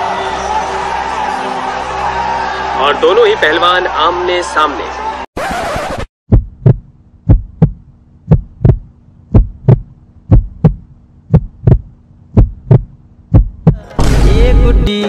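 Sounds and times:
heartbeat thumps: 6.3s - 13.8s.

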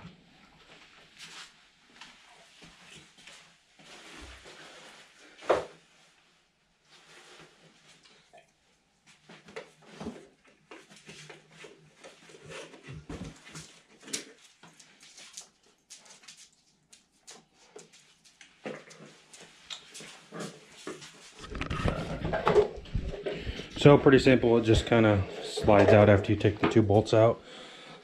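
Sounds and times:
faint knocks rubs and squeaks: 19.5s - 26.2s.

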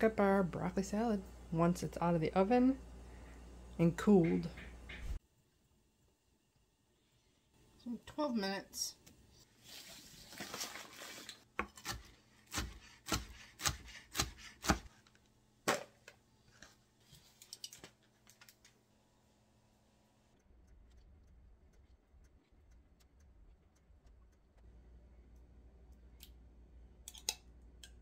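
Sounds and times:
aluminium foil crinkling: 9.7s - 11.5s
faint low hum: 15.0s - 28.0s.

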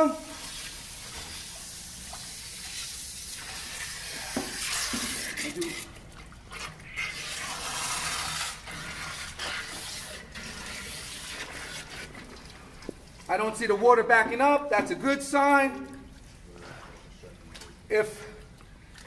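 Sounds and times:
hose water rushing and splashing: 0.0s - 13.4s.

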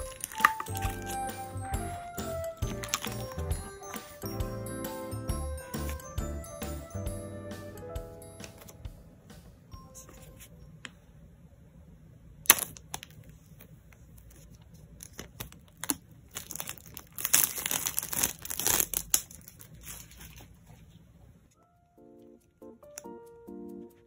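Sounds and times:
plastic shrink-wrap crinkling: 0.0s - 4.0s, 14.5s - 20.8s.

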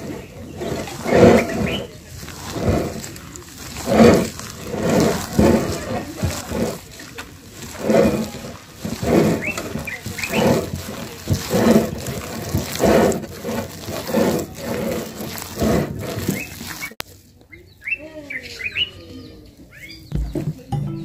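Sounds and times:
birds chirping: 0.0s - 5.0s, 9.1s - 10.8s, 16.2s - 21.0s
dough squelching: 0.0s - 17.0s.

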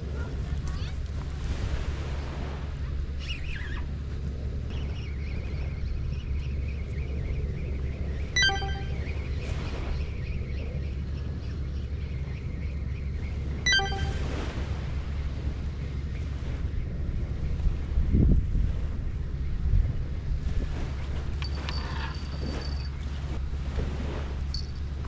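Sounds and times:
bright ringing dings: 8.4s - 9.2s, 13.7s - 14.4s
wind buffeting microphone: 15.9s - 25.0s.

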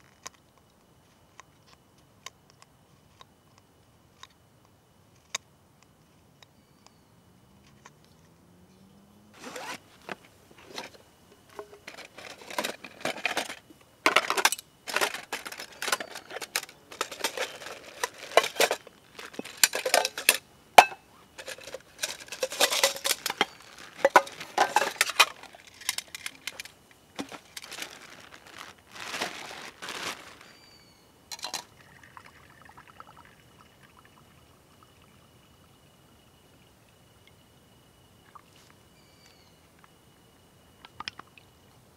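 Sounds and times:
plastic wrapping rustling: 9.4s - 11.0s, 11.6s - 20.4s, 21.4s - 30.7s
metal pots clinking and scraping: 9.4s - 30.5s, 31.3s - 31.8s.

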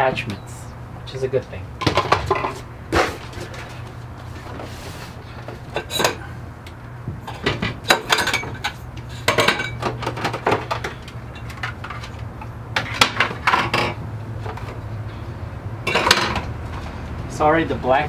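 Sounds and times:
steady low hum: 0.0s - 18.0s
plastic items clattering in a bin: 9.3s - 12.2s.

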